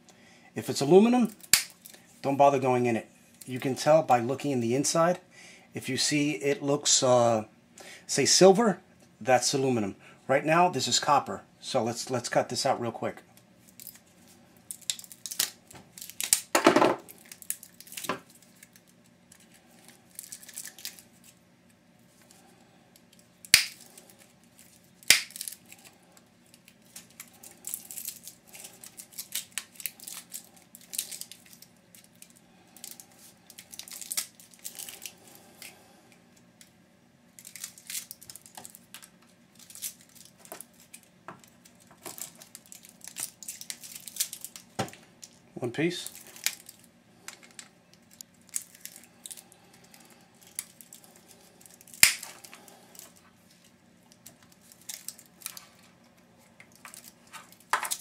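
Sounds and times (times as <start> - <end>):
sharp wire snaps: 1.4 - 1.8, 23.4 - 23.8, 25.0 - 25.6, 51.9 - 52.4.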